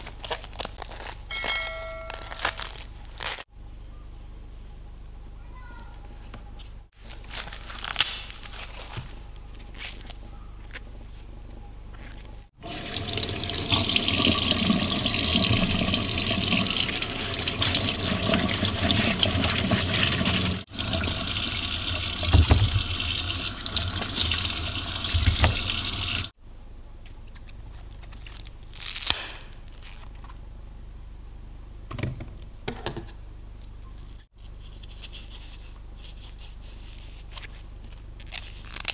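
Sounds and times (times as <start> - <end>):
corn husk rustling and tearing: 0.0 - 1.3, 2.3 - 3.5, 7.0 - 11.3, 27.6 - 30.4, 34.4 - 38.9
tap water splashing into sink: 25.1 - 26.0.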